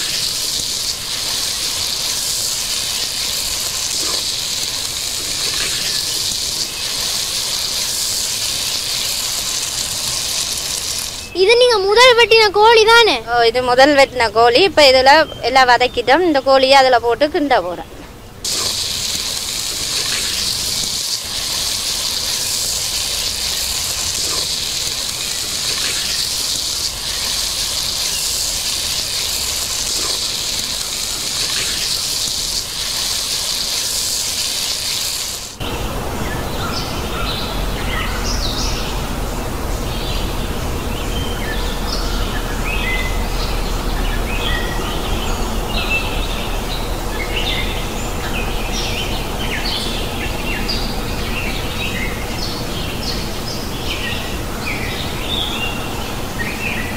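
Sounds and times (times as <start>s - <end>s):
meat sizzling in hot oil: 0.0s - 11.8s, 18.4s - 35.6s
birds chirping: 1.3s - 32.8s.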